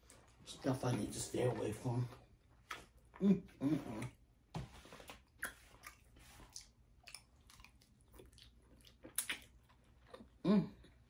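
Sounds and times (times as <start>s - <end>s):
person chewing wetly: 5.1s - 11.0s.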